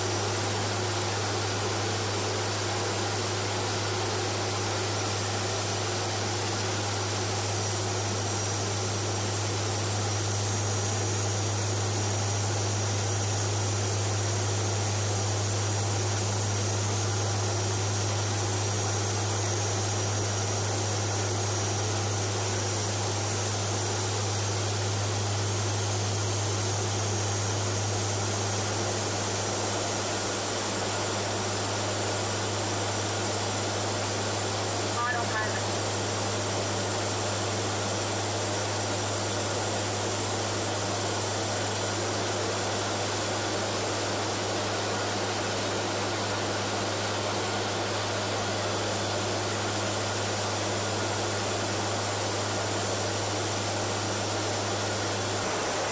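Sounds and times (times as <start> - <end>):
turboprop engines droning: 0.0 - 37.3.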